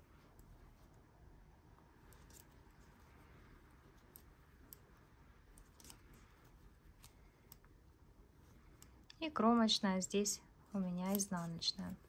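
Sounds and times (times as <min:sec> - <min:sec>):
knitting needles clicking: 0:02.0 - 0:09.3, 0:10.6 - 0:12.0.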